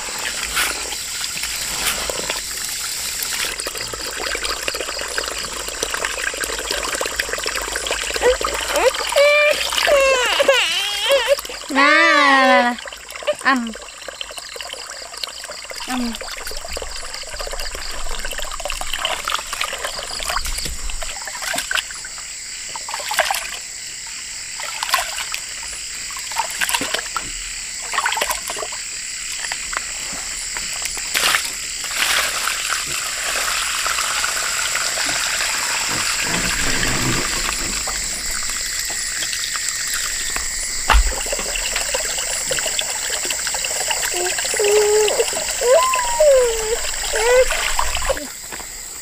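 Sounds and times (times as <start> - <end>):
water trickling and splashing: 0.0 - 49.0
knocks and clatters: 35.9 - 39.3.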